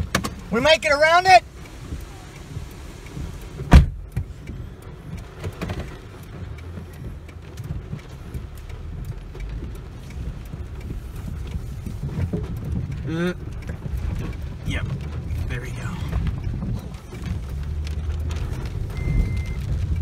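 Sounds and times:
car engine rumble and road noise: 0.0 - 20.0
heavy rain: 0.0 - 20.0
car door slamming: 3.6 - 4.3.

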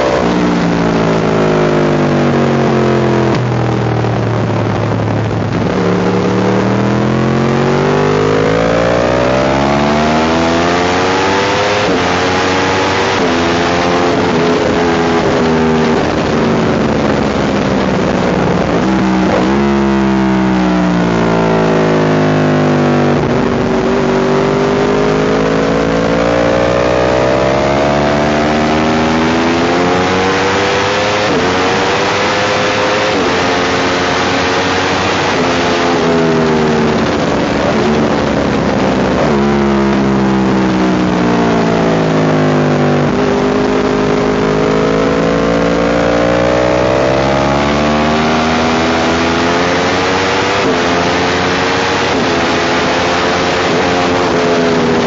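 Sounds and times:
motorcycle engine revving: 0.0 - 55.0
wind rush: 3.4 - 7.8, 31.1 - 40.5.

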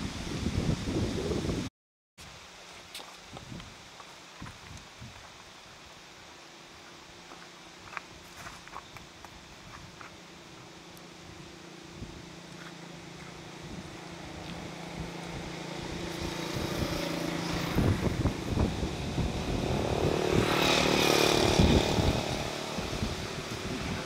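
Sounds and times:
vehicle engine passing: 11.1 - 24.0.

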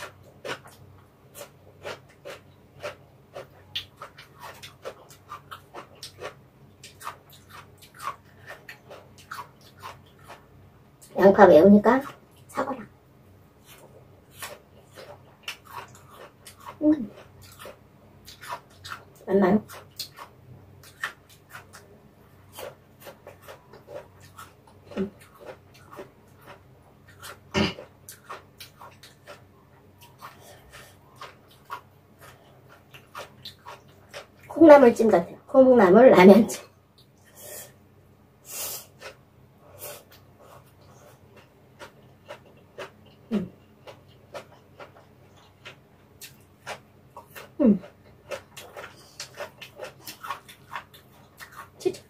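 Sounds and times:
person chewing noodles: 0.0 - 11.1, 13.6 - 34.5, 38.4 - 52.0
person humming mm: 43.3 - 43.6.

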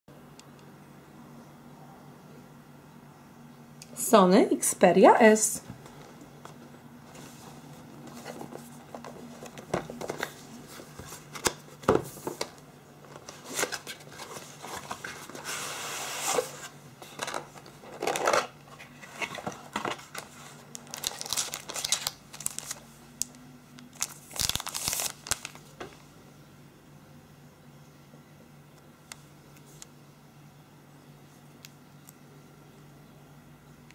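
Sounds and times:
cardboard scraping and rustling: 5.9 - 22.8.

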